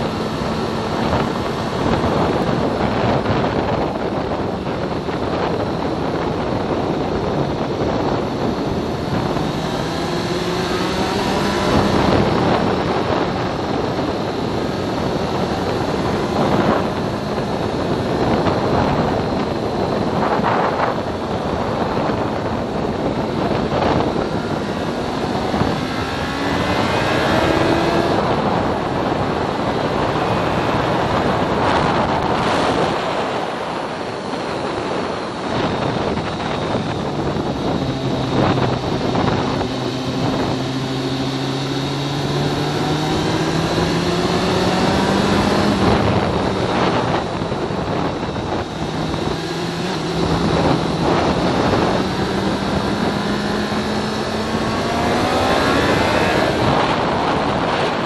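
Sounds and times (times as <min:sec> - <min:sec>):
motorcycle engine revving: 0:00.0 - 0:58.0
wind noise on microphone: 0:00.0 - 0:58.0.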